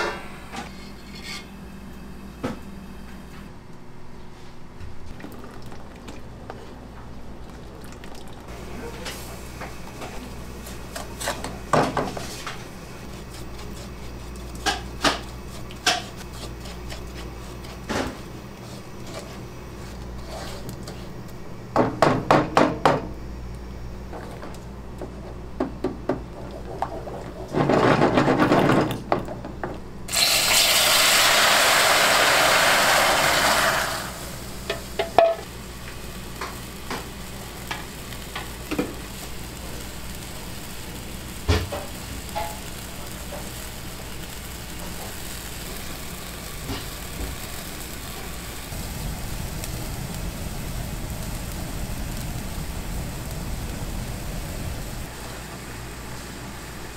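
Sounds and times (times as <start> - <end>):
liquid sizzling in pan: 8.5 - 19.4, 30.1 - 55.2
utensils scraping pots: 12.1 - 18.0.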